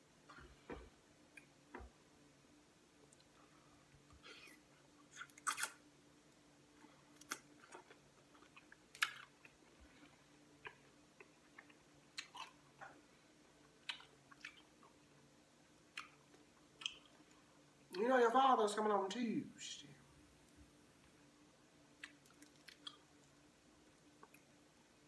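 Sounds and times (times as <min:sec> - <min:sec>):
faint low hum: 0:00.0 - 0:25.0
wet mouth smacks chewing: 0:04.4 - 0:05.8, 0:13.8 - 0:14.7, 0:22.0 - 0:23.0.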